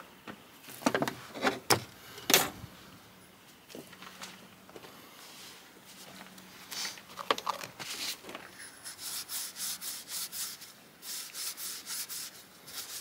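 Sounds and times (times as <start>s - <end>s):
cloth rag rubbing metal: 8.6s - 13.0s.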